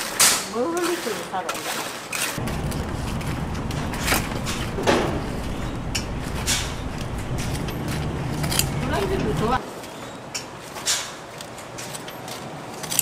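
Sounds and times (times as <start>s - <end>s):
steady low rumble: 2.4s - 9.6s
metal tongs clinking on wire rack: 3.1s - 9.6s.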